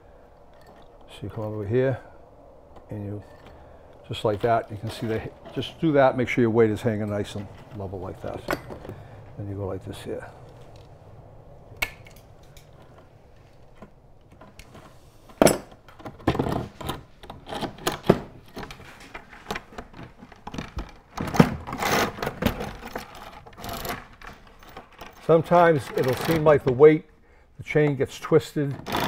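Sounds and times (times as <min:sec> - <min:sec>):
metal chain clinking and rattling: 0:06.7 - 0:09.0, 0:12.0 - 0:13.0.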